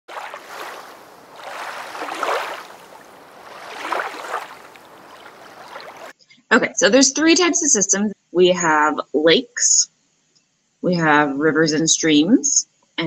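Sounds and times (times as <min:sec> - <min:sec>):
rushing water: 0:00.0 - 0:06.1.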